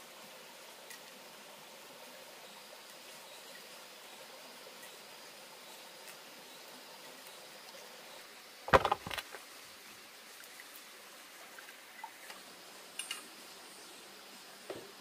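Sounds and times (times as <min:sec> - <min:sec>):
faint steady hiss: 0:00.0 - 0:15.0
sharp knocks clattering: 0:08.7 - 0:09.4.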